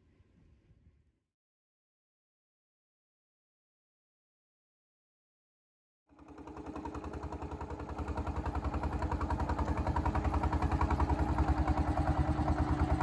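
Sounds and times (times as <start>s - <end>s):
boat engine chugging: 6.1s - 13.0s.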